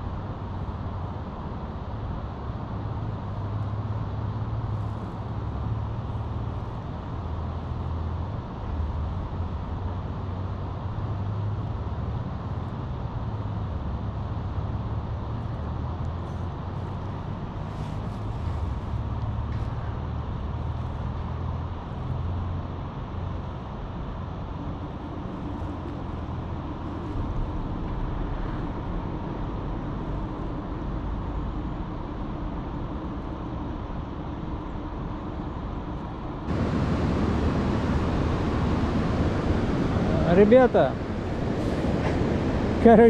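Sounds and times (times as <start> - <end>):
low rumble of traffic: 0.0 - 43.0
bright rushing noise: 36.5 - 43.0.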